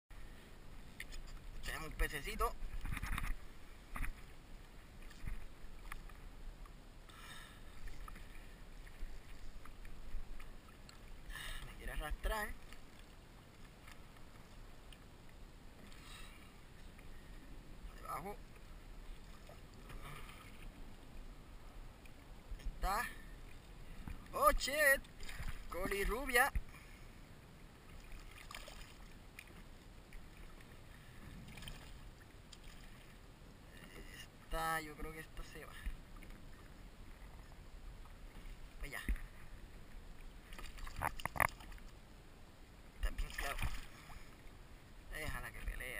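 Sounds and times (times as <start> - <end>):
water lapping against kayak hull: 0.2 - 42.1, 42.7 - 45.8
faint ticks: 7.8 - 11.0.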